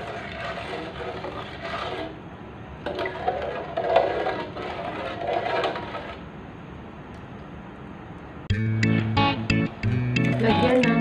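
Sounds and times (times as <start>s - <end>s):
liquid sloshing: 0.0s - 2.2s
spatula scraping a pot: 0.0s - 2.2s, 2.9s - 6.3s.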